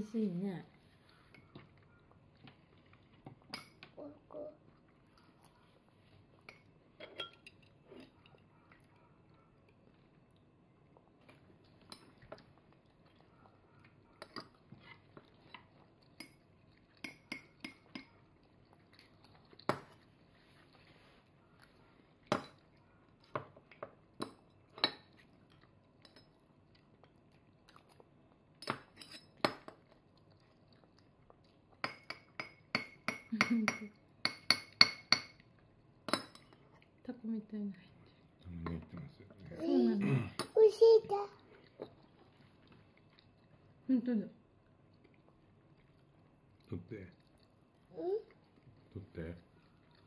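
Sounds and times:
metal spoon clinking on dishes: 6.4s - 7.7s, 28.6s - 29.7s, 31.8s - 35.4s, 36.1s - 36.6s.

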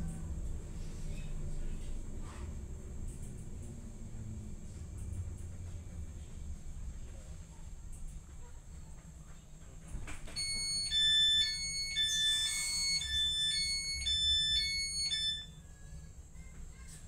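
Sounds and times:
train rumbling: 0.0s - 17.0s
two-tone warning beeps: 10.4s - 15.6s.

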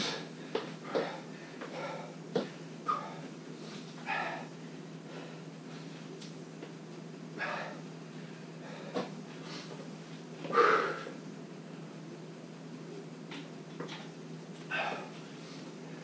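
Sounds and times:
man breathing heavily: 0.0s - 5.6s, 7.4s - 9.8s, 10.4s - 11.2s, 14.7s - 16.0s
steady low hum: 0.0s - 16.0s.

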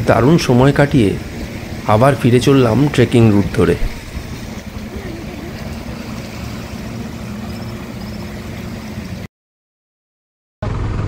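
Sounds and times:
motorboat engines droning: 0.0s - 9.3s.

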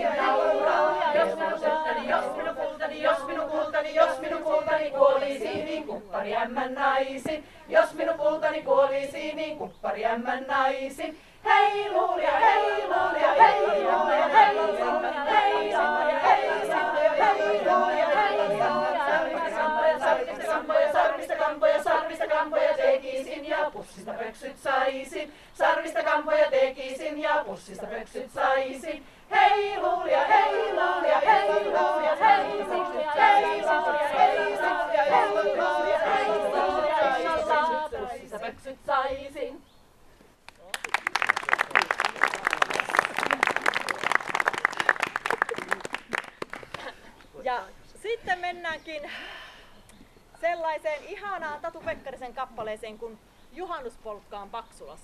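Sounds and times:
women's choir singing a cappella: 0.0s - 39.6s.

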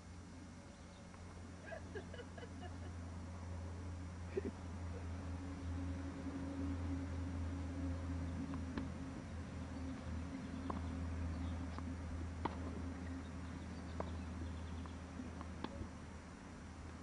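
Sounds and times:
steady low hum: 0.0s - 17.0s
distant tennis balls struck: 8.5s - 9.0s, 11.7s - 12.8s.

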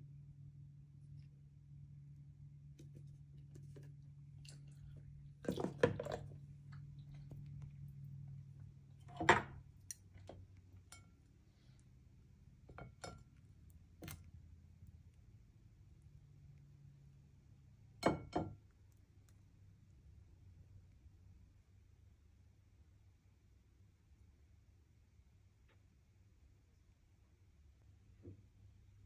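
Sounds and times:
low steady hum: 0.0s - 29.0s
dishes and utensils clinking: 12.7s - 13.3s.

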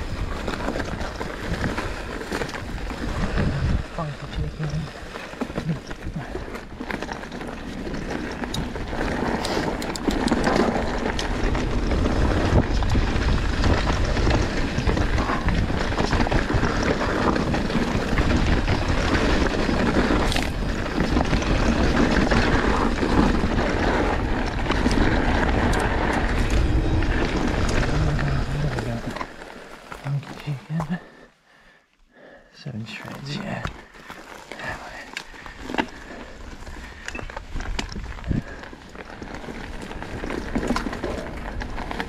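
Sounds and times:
wind rushing over microphone: 0.0s - 5.0s, 8.5s - 29.2s
tyres rolling over dirt: 0.0s - 31.3s, 32.8s - 42.0s
bike rattling: 0.0s - 31.8s, 32.8s - 42.0s.

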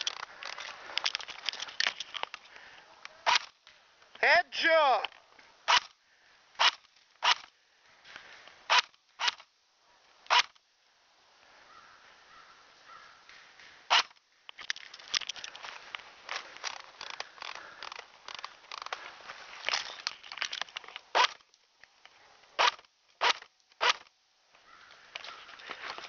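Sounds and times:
airsoft gun shots: 5.7s - 5.9s, 6.6s - 7.4s
footsteps crunching snow and brush: 18.5s - 20.6s, 24.8s - 26.0s.

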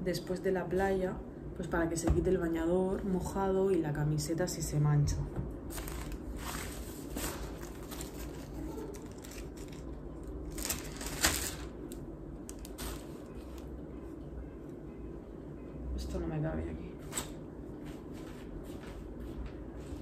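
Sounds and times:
plastic bag rustling: 5.7s - 13.8s.

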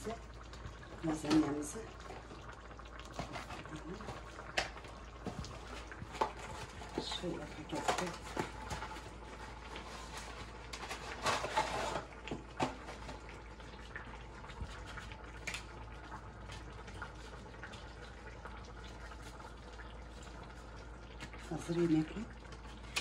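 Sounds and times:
pot simmering: 0.0s - 23.0s
kitchen rustle or clatter: 3.1s - 13.4s.

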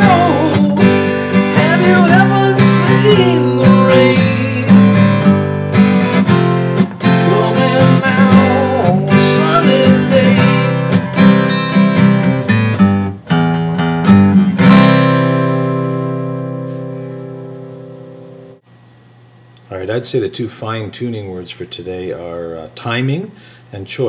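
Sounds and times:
acoustic guitar strumming chords: 0.0s - 18.7s.

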